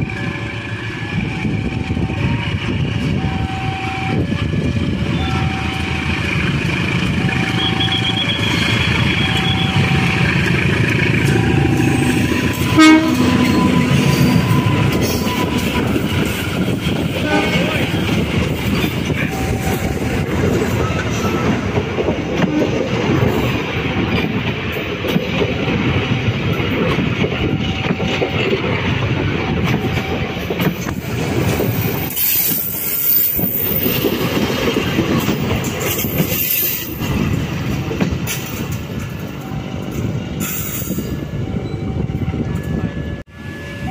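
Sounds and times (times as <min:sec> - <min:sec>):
train wheels rumbling on rails: 0:00.0 - 0:43.9.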